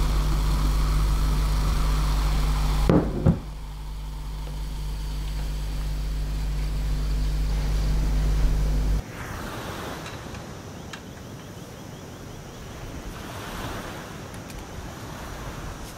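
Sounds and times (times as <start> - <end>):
steady low hum: 0.0 - 9.8
ocean waves washing in: 0.0 - 15.9
wind: 0.0 - 15.9.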